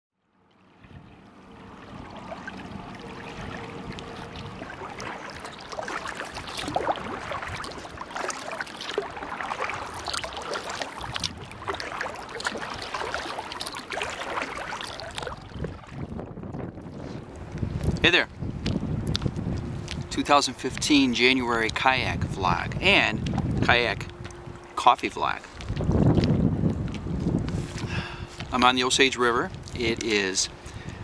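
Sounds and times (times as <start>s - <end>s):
river water splashing around kayak: 0.5s - 17.9s.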